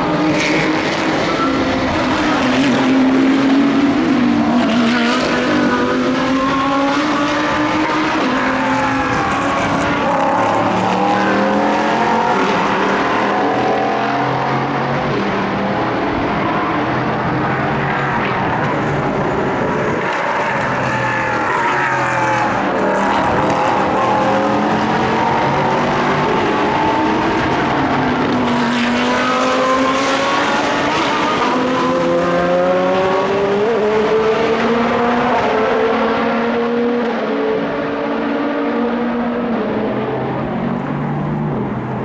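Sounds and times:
racing car engines: 0.0 - 42.0.

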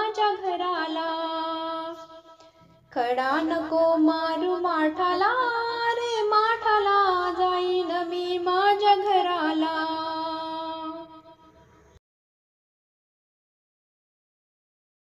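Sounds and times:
woman singing devotional song: 0.0 - 11.5.

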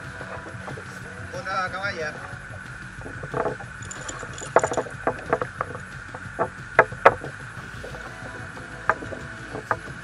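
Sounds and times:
wind and sea hiss: 0.0 - 10.0
clicks and knocks of fishing tackle: 3.0 - 7.5.

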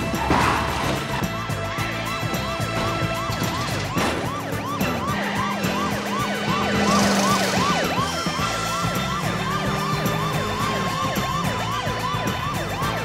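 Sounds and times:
police siren yelping: 0.0 - 13.0
vehicle hum: 0.0 - 13.0.

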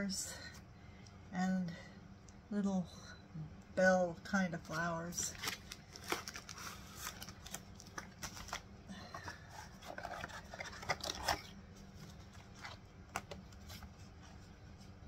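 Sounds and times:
plastic wrapping crinkling: 4.7 - 14.5.

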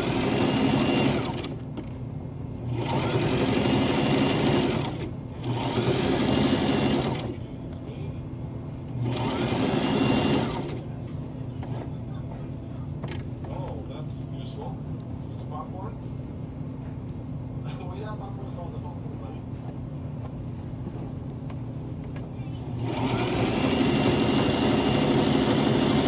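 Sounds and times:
sewing machine stitching: 0.0 - 1.7, 2.7 - 7.4, 9.0 - 10.9, 22.8 - 26.0.

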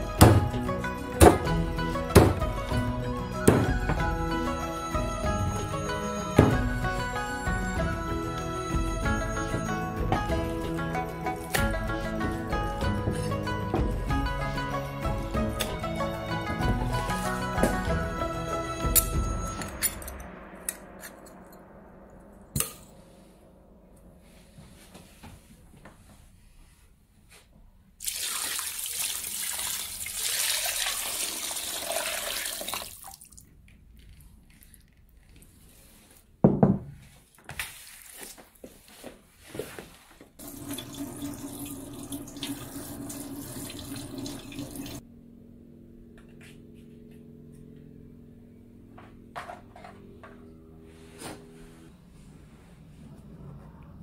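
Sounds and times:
tap water running into a pot: 28.0 - 33.4, 40.4 - 45.0.

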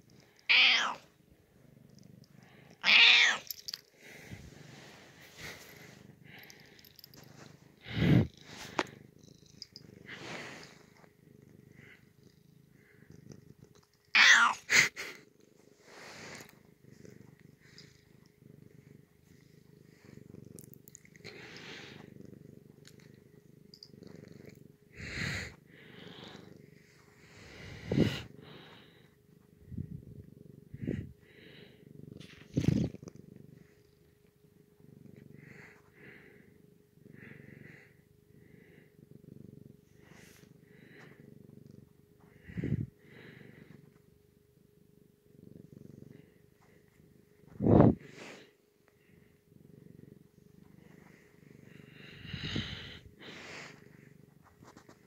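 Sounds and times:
cat purring: 0.0 - 55.0.

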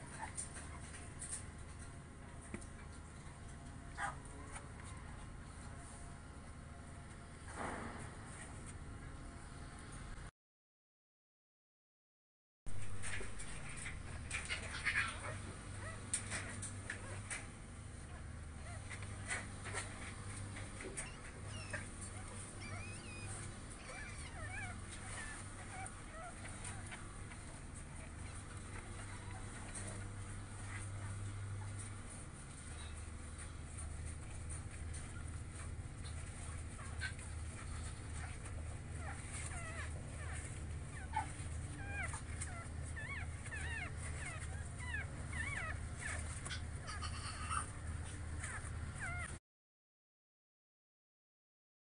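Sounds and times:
low steady hum: 12.7 - 49.4
puppies squeaking and whimpering: 12.8 - 17.4, 18.6 - 49.4.

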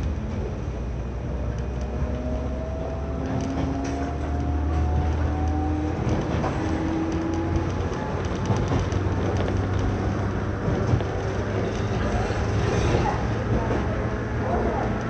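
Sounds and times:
wheel-on-rail rumble: 0.0 - 15.0
clicks over rail joints: 3.2 - 12.1.

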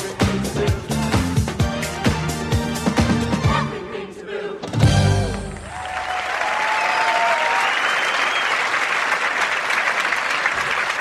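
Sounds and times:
audience applauding and cheering: 5.2 - 11.0.

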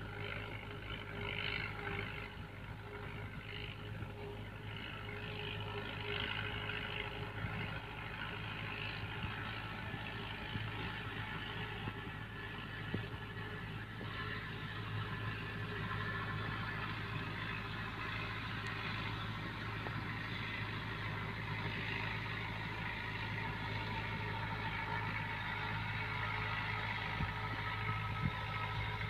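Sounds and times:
tractor diesel engine running: 0.0 - 29.0.

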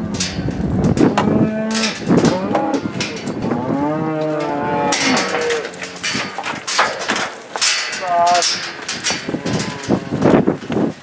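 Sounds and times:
cattle mooing: 1.2 - 6.2, 8.0 - 10.3.

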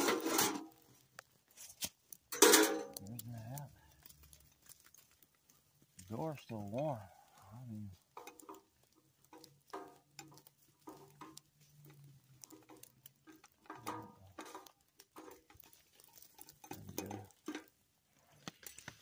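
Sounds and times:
light clicks and taps: 2.8 - 19.0.

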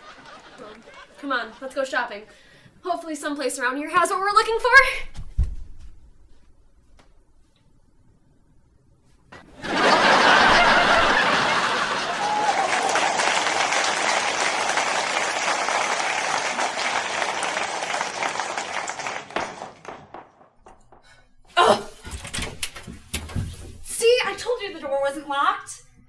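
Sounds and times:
audience applause: 0.0 - 1.3, 9.5 - 20.6.

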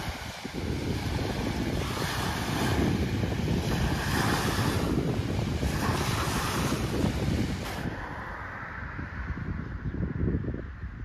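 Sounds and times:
waves washing on gravel beach: 0.0 - 8.4
wind buffeting microphone: 0.0 - 11.0.

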